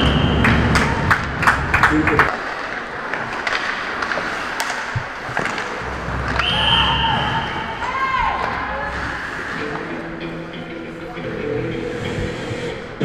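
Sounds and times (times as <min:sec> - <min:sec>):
referee's whistle: 0:00.0 - 0:00.5, 0:06.4 - 0:07.7
hockey stick and puck clacks: 0:00.1 - 0:06.6
skate and stick clicks on ice: 0:00.8 - 0:06.6.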